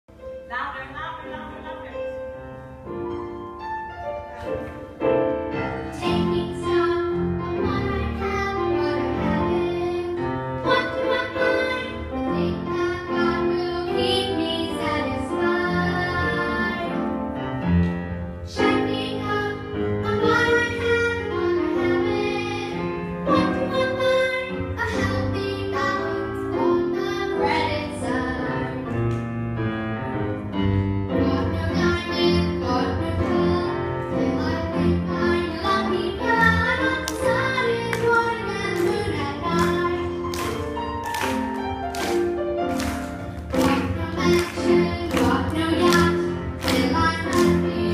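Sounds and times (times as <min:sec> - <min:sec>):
musical backing track: 0:00.1 - 0:47.9
girl singing into a microphone: 0:05.6 - 0:17.0, 0:18.5 - 0:29.0, 0:31.1 - 0:40.3, 0:43.6 - 0:47.9.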